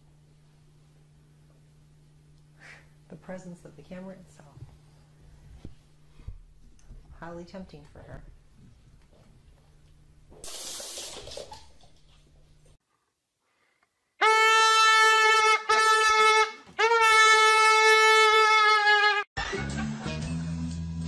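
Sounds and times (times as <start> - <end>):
faint hiss: 10.4 - 11.6
loud steady horn-like tone: 14.2 - 19.3.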